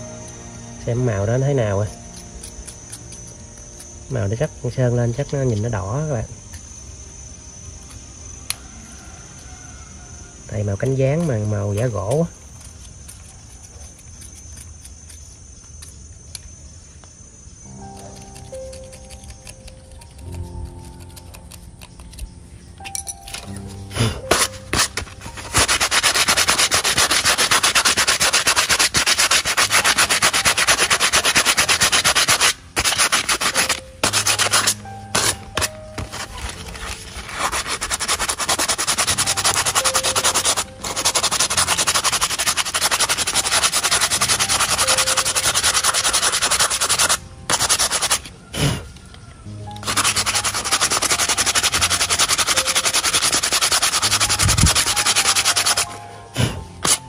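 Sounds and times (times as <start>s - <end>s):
sanding coconut shell: 0.9s - 5.9s, 10.5s - 15.5s, 17.7s - 22.3s, 24.2s - 48.4s, 49.8s - 56.0s.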